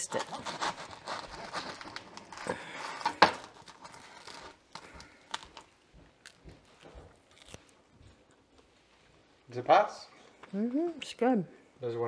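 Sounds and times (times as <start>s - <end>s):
bread knife sawing crusty bread: 0.0s - 2.0s
chewing crusty bread: 0.0s - 8.7s.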